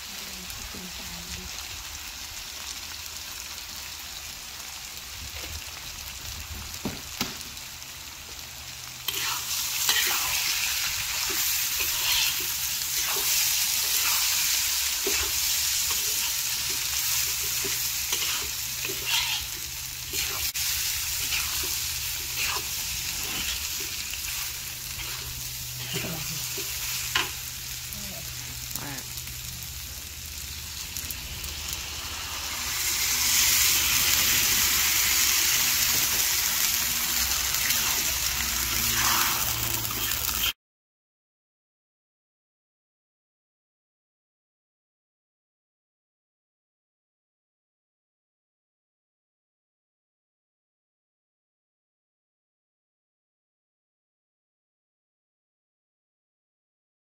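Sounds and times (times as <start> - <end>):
rice sizzling in a wok: 0.0 - 40.6
metal spatula scraping a pan: 9.1 - 27.4, 37.4 - 40.5.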